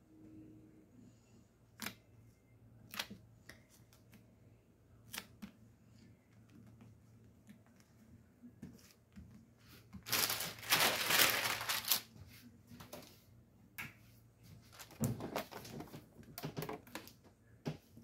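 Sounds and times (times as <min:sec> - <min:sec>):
parchment paper crinkling: 0:09.6 - 0:13.1.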